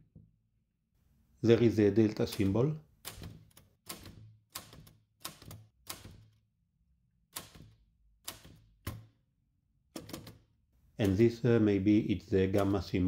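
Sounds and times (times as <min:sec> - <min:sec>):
typewriter keys clacking: 0:02.1 - 0:06.3, 0:10.0 - 0:10.4, 0:12.5 - 0:13.0.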